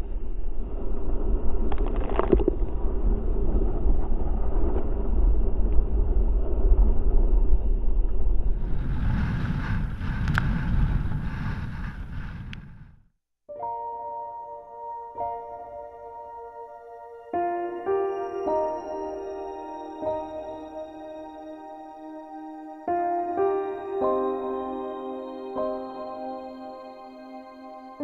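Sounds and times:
wind rumbling on microphone: 0.0 - 13.1.

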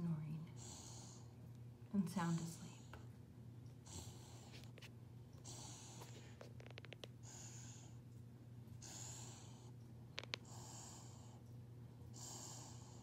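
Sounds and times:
puppy snoring softly: 0.4 - 1.4, 3.8 - 8.0, 8.7 - 11.4, 12.0 - 13.0.

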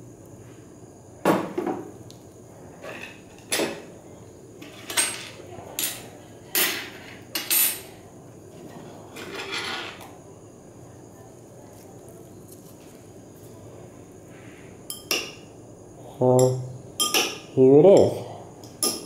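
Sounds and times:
glassware clinks and knocks: 16.4 - 18.1, 18.7 - 19.0.

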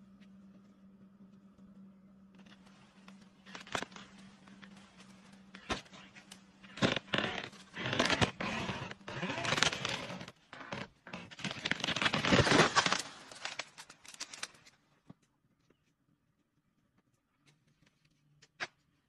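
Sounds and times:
tree wood cracking and crashing: 3.4 - 10.3, 11.2 - 14.7.

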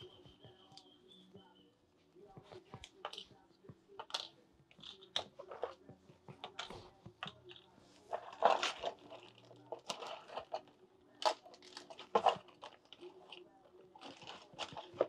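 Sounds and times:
barber tools rattling in metal case: 4.0 - 13.4, 14.0 - 15.0.

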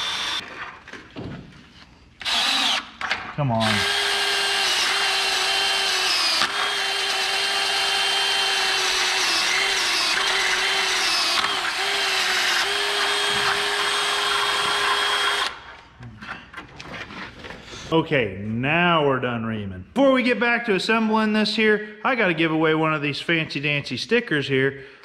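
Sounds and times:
cordless drill running: 0.0 - 0.4, 2.2 - 3.0, 3.6 - 15.7.

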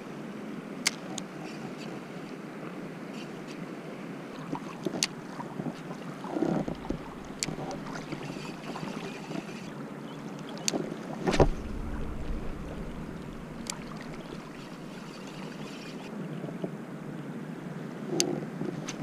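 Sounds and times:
water rushing: 5.2 - 9.9, 11.1 - 16.2
wind on microphone: 6.3 - 8.7, 11.2 - 16.1.

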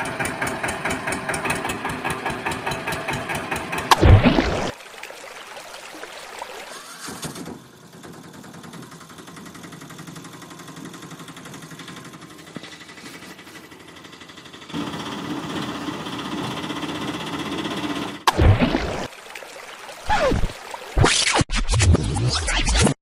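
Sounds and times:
small engine chattering: 0.0 - 4.0, 6.6 - 18.3.

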